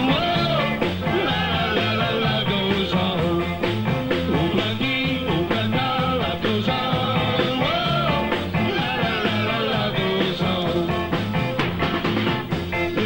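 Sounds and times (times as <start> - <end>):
rock and roll band music: 0.0 - 13.0.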